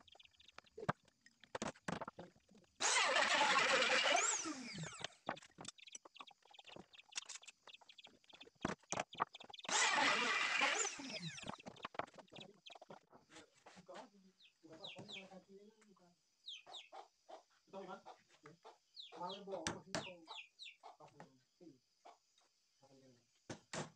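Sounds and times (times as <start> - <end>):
electric router winding down: 2.8 - 5.2, 9.7 - 11.6.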